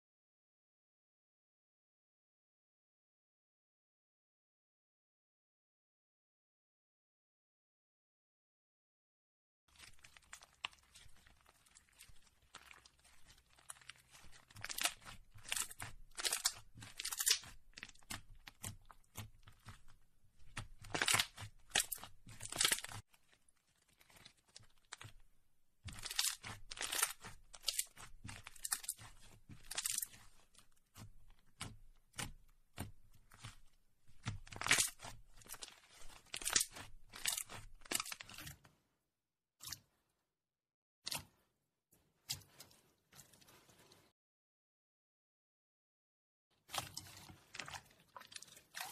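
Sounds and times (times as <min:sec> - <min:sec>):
slime crackling and popping: 0:09.8 - 0:25.3, 0:25.9 - 0:38.5.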